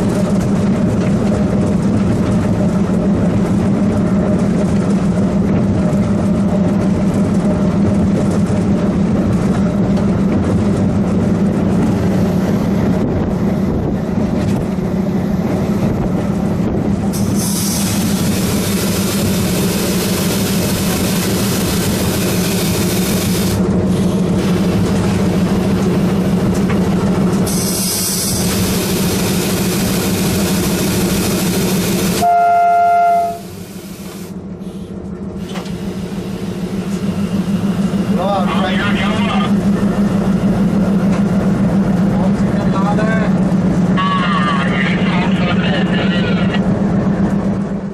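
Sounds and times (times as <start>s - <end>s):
diesel engine droning: 0.0s - 47.9s
train on the rails: 0.0s - 47.9s
locomotive air horn blast: 32.2s - 34.9s.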